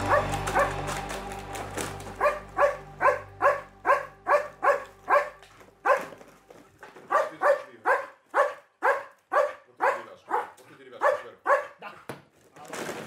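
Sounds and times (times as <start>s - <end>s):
dog barking: 0.0s - 0.8s, 2.2s - 6.3s, 7.0s - 12.0s.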